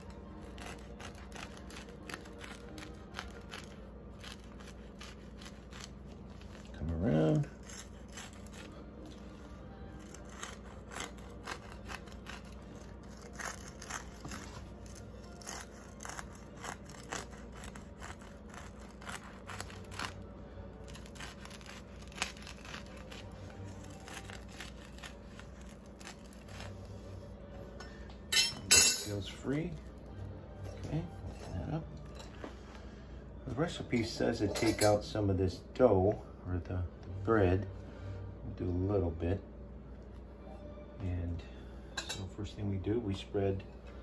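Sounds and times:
knife sawing through bread crust: 0:00.0 - 0:08.8, 0:10.0 - 0:20.2, 0:20.8 - 0:27.0.

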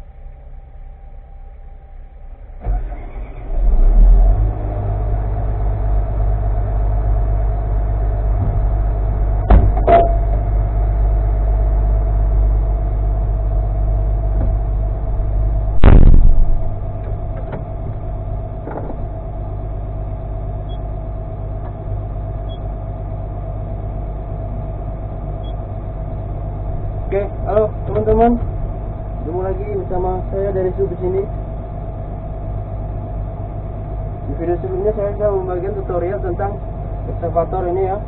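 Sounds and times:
excavator diesel engine running: 0:00.0 - 0:38.0
loud thud: 0:09.4 - 0:10.5, 0:15.8 - 0:19.2.

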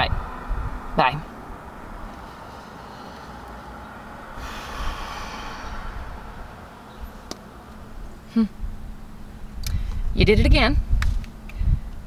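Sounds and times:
woman's voice: 0:01.0 - 0:01.3, 0:10.2 - 0:10.8.

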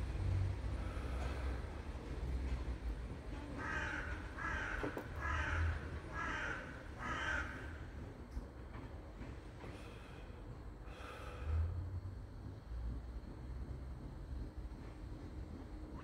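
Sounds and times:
crow cawing: 0:03.6 - 0:07.8.

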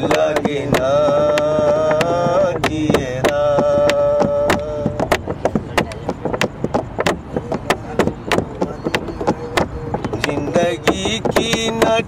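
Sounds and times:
man singing: 0:00.0 - 0:05.2, 0:09.2 - 0:12.0
sharp percussive beats: 0:00.0 - 0:12.0.

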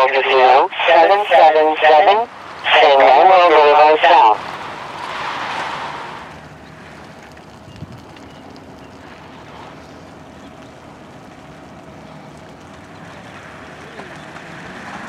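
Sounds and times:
faint steady hum: 0:00.0 - 0:04.4
fire engine motor rumbling: 0:00.0 - 0:15.0.

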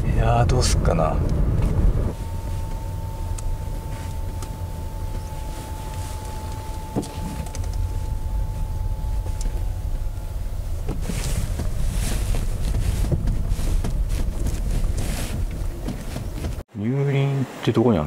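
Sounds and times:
road rumble inside car: 0:00.0 - 0:16.6
faint steady tone: 0:02.1 - 0:12.7.

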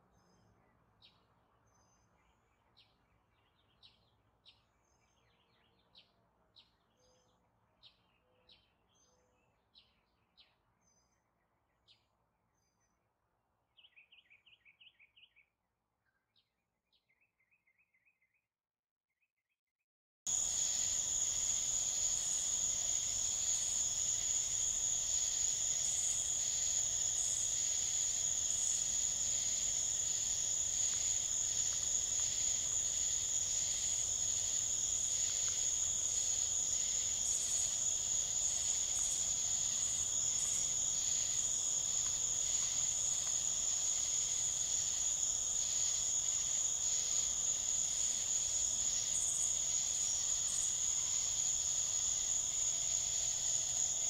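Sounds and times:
insect chirps: 0:20.3 - 0:54.0
night insects trilling: 0:20.3 - 0:54.0.

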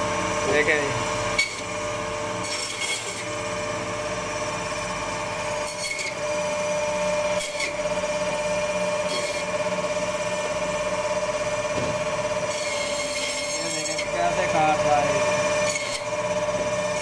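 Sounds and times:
band saw whining: 0:00.0 - 0:17.0
saw blade rasping through bone: 0:02.5 - 0:03.3, 0:05.6 - 0:06.2, 0:07.4 - 0:07.8, 0:09.0 - 0:09.6, 0:12.5 - 0:14.8, 0:15.6 - 0:16.2.

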